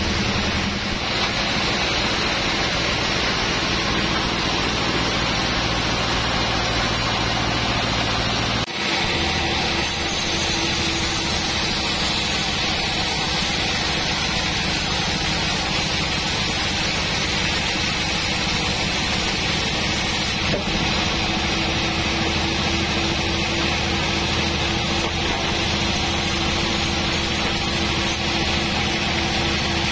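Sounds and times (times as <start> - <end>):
band saw ripping a log: 9.8 - 21.0, 22.9 - 29.9.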